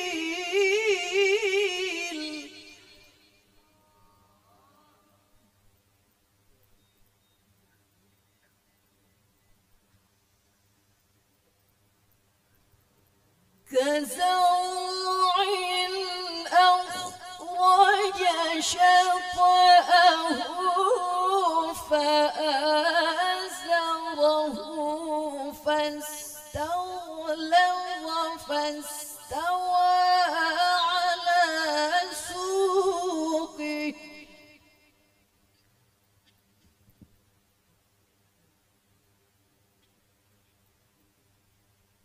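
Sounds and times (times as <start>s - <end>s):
woman reciting melodically: 0.0s - 5.3s, 13.7s - 34.8s.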